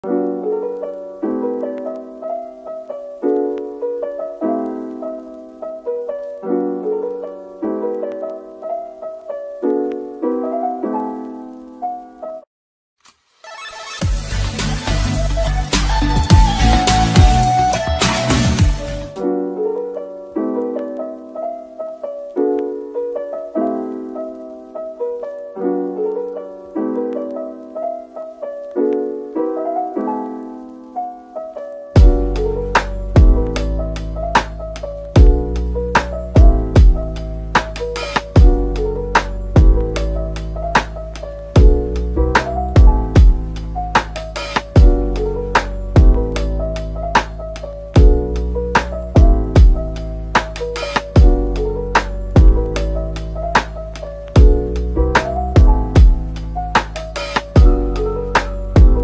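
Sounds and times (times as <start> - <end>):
piano music: 0.0 - 12.5, 13.8 - 59.0.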